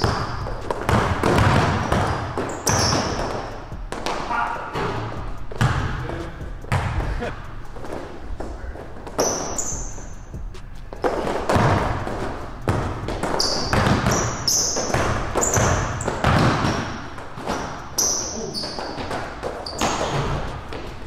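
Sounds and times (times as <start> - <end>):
basketball bouncing on hardwood: 0.0 - 7.2, 10.9 - 17.8
sneakers squeaking: 0.0 - 21.0.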